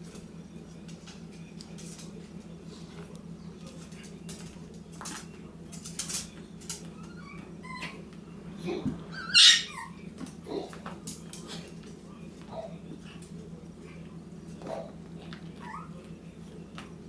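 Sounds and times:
dog claws scuffling on tile: 0:00.8 - 0:07.5
dog yelping: 0:09.1 - 0:10.0.

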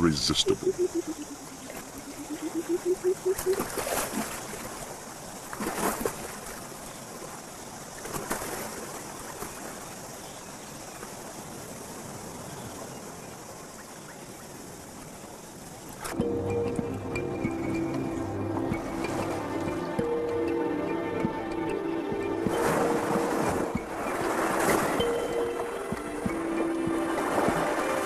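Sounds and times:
running water: 0:00.0 - 0:05.6, 0:14.6 - 0:28.0.

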